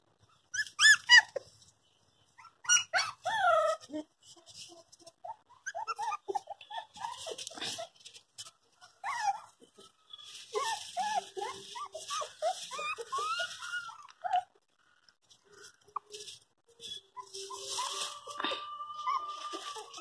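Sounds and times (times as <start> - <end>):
puppies whimpering: 0.4 - 1.5, 2.4 - 4.0, 5.2 - 8.2, 8.8 - 14.7, 16.8 - 20.0.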